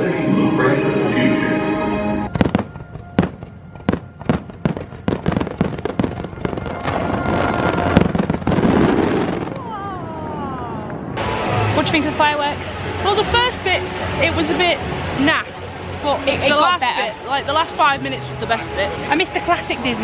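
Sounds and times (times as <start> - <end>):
firework bangs and crackles: 2.3 - 11.4.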